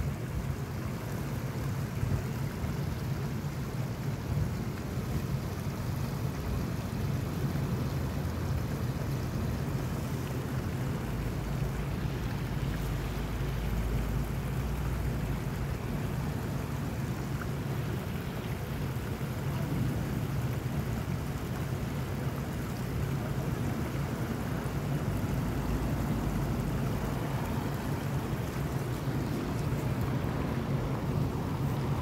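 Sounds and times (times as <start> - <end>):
flowing stream rushing: 0.0 - 32.0.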